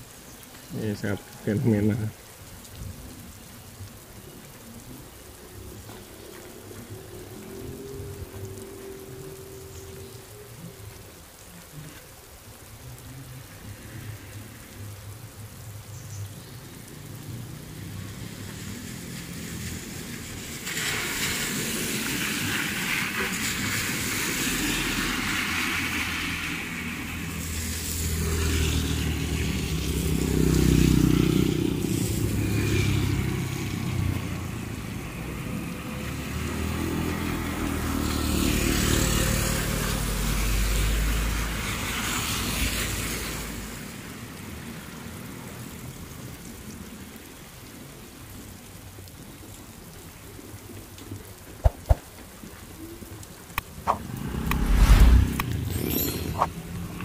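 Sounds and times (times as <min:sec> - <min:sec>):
tyres hissing on wet road: 0:00.0 - 0:57.0
motorcycles passing: 0:16.8 - 0:23.4, 0:24.1 - 0:43.8, 0:53.6 - 0:57.0.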